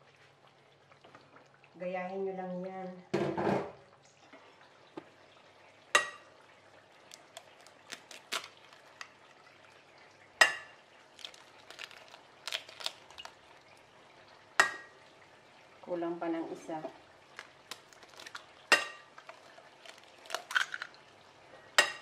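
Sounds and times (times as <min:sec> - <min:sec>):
eggshell clicks: 0:07.1 - 0:09.1, 0:11.2 - 0:13.4, 0:17.4 - 0:20.9
potatoes sizzling in oil: 0:10.4 - 0:13.4, 0:17.3 - 0:21.0.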